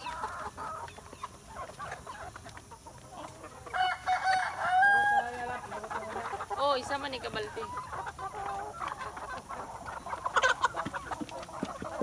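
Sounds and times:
chickens clucking: 0.0 - 12.0
rooster crowing: 3.7 - 5.5.

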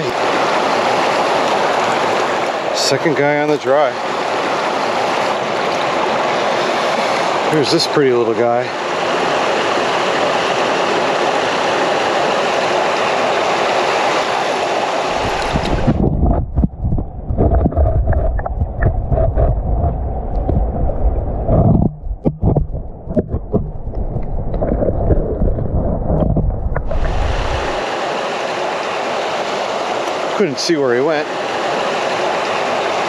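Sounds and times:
stream rushing over rocks: 0.0 - 16.4, 21.9 - 33.0
muffled underwater gurgling: 15.1 - 27.8.

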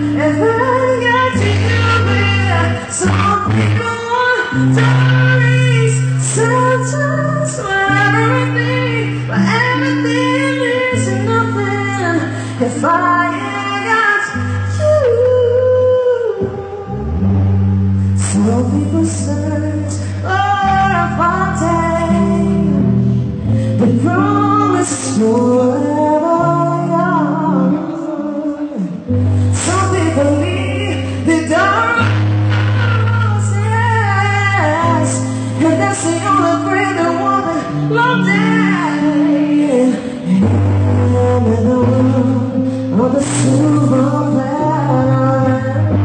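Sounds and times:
woman singing a ballad: 0.0 - 46.0.

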